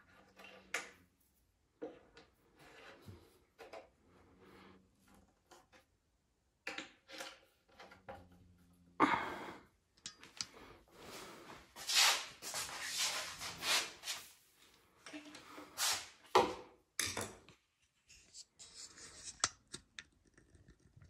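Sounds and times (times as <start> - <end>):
rubbing strokes on panel: 11.8 - 14.3.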